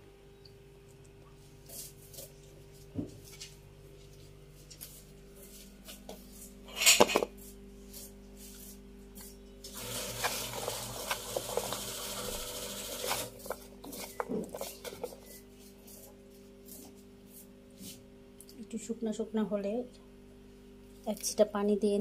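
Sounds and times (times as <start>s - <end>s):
potato strips rustling on plate: 13.1s - 18.0s.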